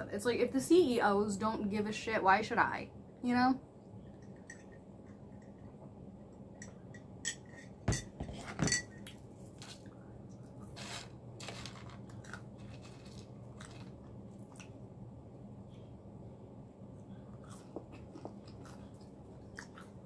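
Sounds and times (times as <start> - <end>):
chewing food: 12.0 - 14.8, 17.0 - 20.0.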